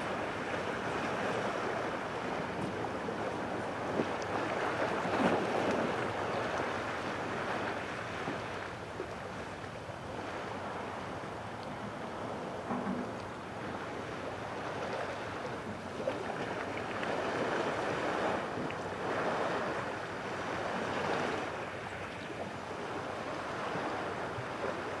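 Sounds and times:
water lapping at shore: 0.0 - 25.0
faint knock: 12.7 - 13.2.

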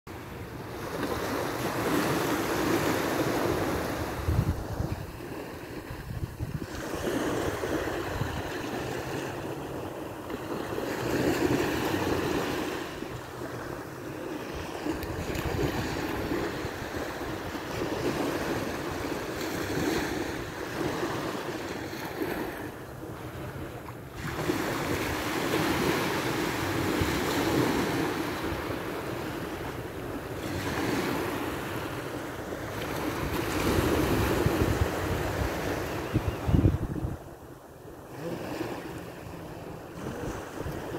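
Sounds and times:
small waves breaking on sand: 0.1 - 40.9
wind buffeting microphone: 3.2 - 9.0, 14.6 - 18.9, 33.2 - 37.5.

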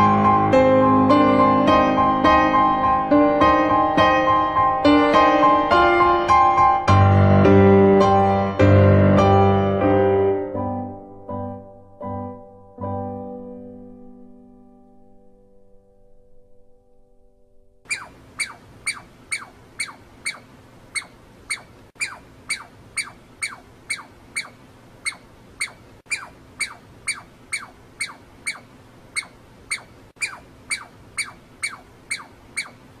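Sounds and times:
squirrel squeaking calls: 17.9 - 33.0.

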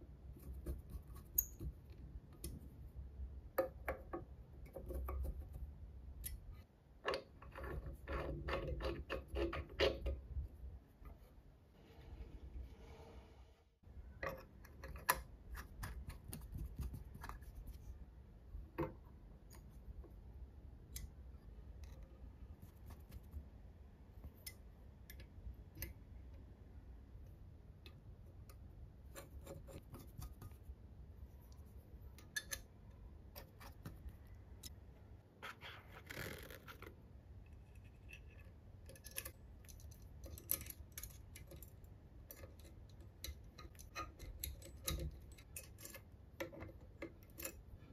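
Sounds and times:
small metal parts clicking: 37.8 - 47.8.

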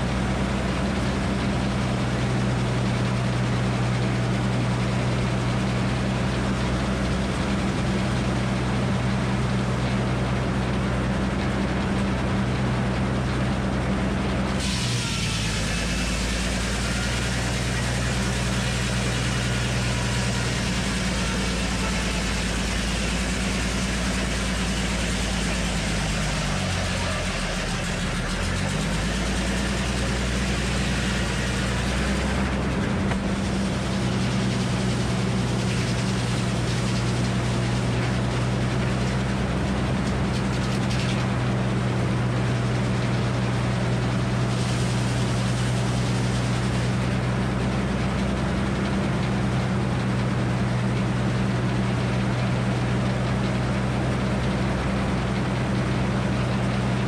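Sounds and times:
engine droning: 0.0 - 57.0
circular saw cutting log: 14.4 - 49.0
saw blade spinning freely: 14.6 - 38.4.

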